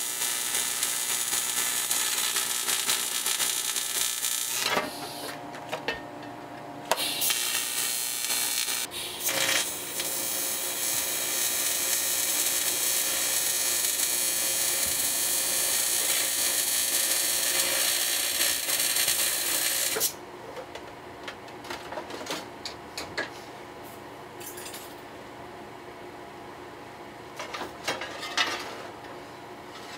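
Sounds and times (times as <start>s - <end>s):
welding arc hissing: 0.0s - 5.2s, 7.0s - 20.1s.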